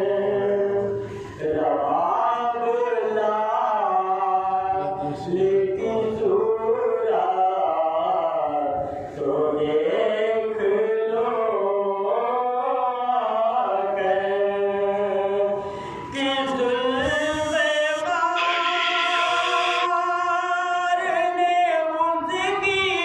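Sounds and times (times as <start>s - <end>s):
man chanting through loudspeaker: 0.0s - 23.0s
short breaths: 1.0s - 1.4s, 15.6s - 16.1s.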